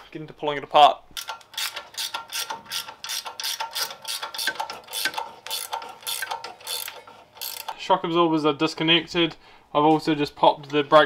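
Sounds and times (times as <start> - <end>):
ratchet wrench clicking: 1.2 - 7.8.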